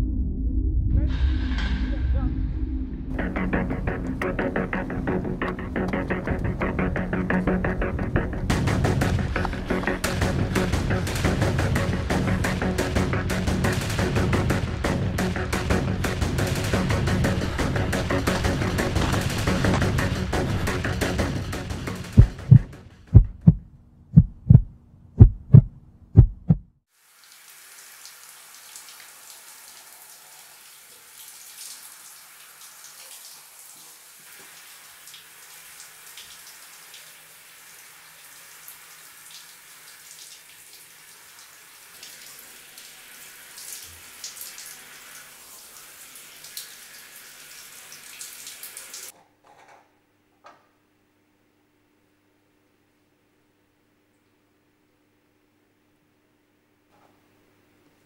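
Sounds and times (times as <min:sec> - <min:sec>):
low steady hum: 0:00.0 - 0:12.5, 0:17.0 - 0:26.7
shower running: 0:08.5 - 0:22.6, 0:26.9 - 0:49.1
heartbeat thumps: 0:15.8 - 0:26.8.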